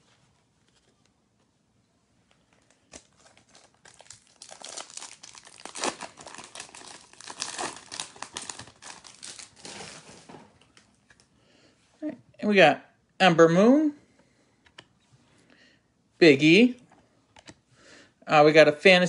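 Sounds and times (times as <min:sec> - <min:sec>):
card pack wrapper crinkling: 0:02.5 - 0:11.2.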